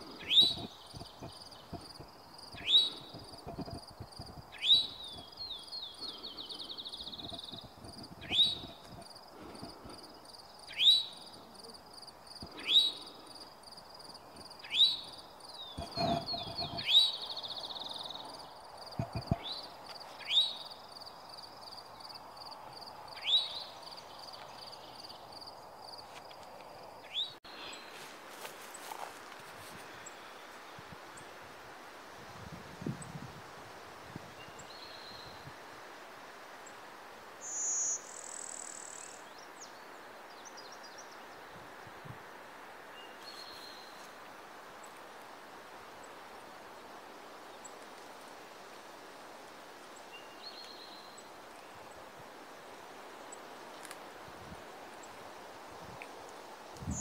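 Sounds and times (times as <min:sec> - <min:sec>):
bird singing sharp notes and trill: 0:00.2 - 0:09.0, 0:10.3 - 0:11.4, 0:14.2 - 0:20.9.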